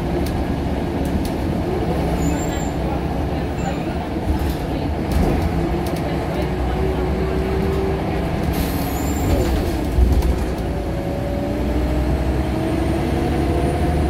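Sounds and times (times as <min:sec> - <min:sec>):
bus engine and road rumble: 0:00.0 - 0:14.0.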